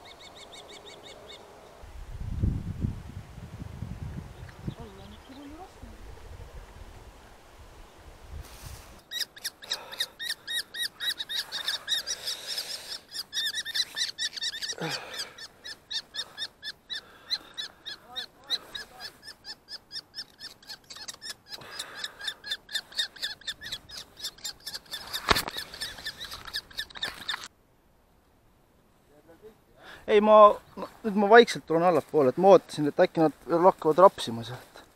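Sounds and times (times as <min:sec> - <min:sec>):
kestrel alarm call: 0:00.0 - 0:01.4, 0:09.0 - 0:27.5.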